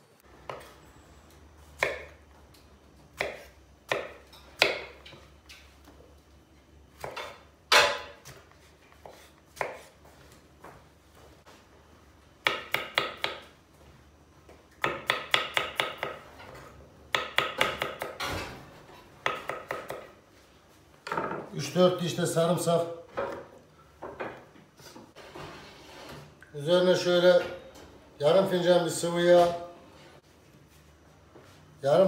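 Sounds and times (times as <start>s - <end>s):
knife chopping on wooden board: 1.8s - 2.2s, 3.2s - 5.2s, 7.0s - 10.0s, 12.4s - 13.5s, 14.8s - 16.2s, 17.1s - 18.2s, 19.2s - 20.1s.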